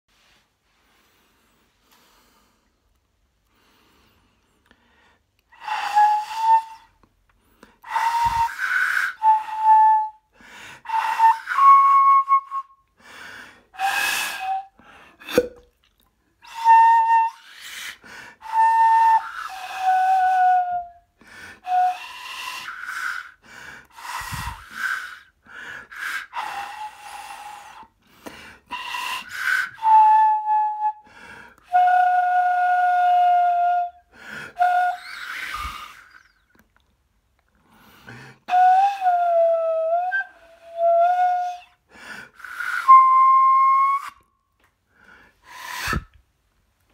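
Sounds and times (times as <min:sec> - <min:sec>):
breathy flute notes: 0:05.4 - 0:15.6, 0:16.4 - 0:36.6, 0:38.1 - 0:44.3.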